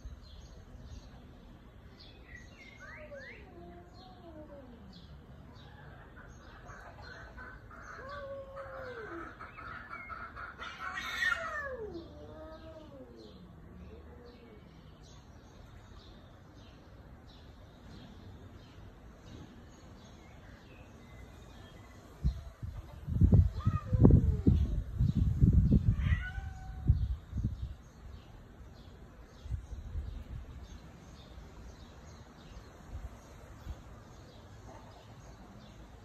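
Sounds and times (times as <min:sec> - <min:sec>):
cat meowing: 0:25.8 - 0:27.2.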